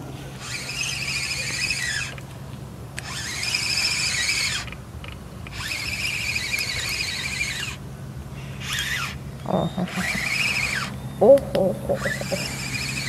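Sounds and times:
fishing reel whirring: 0.3s - 2.2s, 3.0s - 4.8s, 5.5s - 7.8s, 8.6s - 9.2s, 9.8s - 11.0s, 12.0s - 13.0s.

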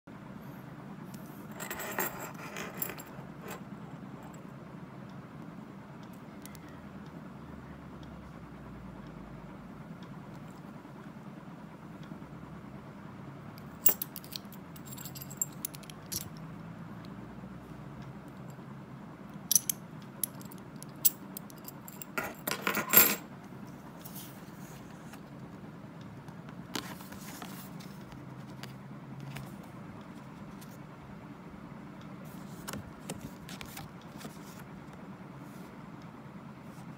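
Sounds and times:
low background hum: 0.1s - 36.9s
metal clinks and jingles: 13.8s - 16.4s.

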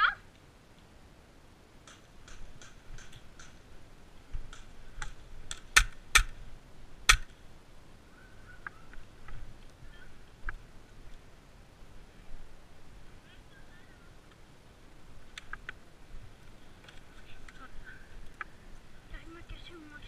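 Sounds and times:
airsoft gun clicks: 1.8s - 3.6s, 4.5s - 6.4s, 7.1s - 7.4s
airsoft gun pops: 4.5s - 6.4s, 7.1s - 7.3s.

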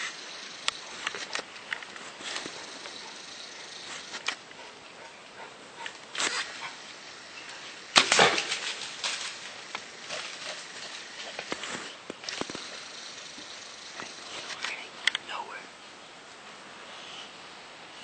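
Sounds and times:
hog rustling through dry leaves: 6.1s - 13.5s.

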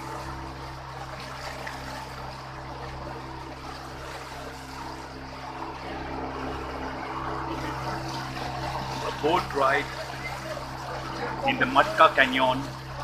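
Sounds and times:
boat motor running: 0.0s - 13.0s
water splashing along hull: 0.0s - 13.0s.

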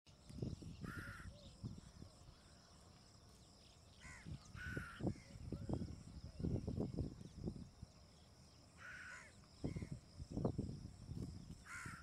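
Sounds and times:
birds cawing: 0.8s - 1.5s, 4.0s - 5.8s, 8.8s - 10.0s, 11.6s - 12.0s.

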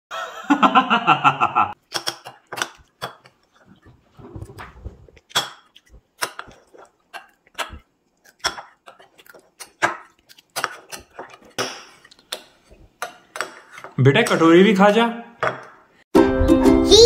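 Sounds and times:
man laughing: 0.2s - 1.8s.

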